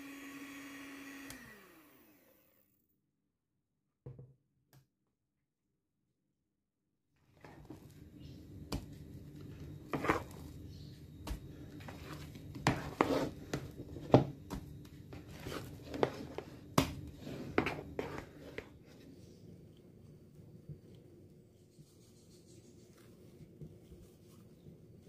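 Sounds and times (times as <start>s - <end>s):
soft squishes of batter: 7.2s - 25.0s
low steady hum: 7.3s - 25.0s
spatula scraping a bowl: 9.8s - 10.5s, 11.8s - 14.2s, 15.1s - 19.1s.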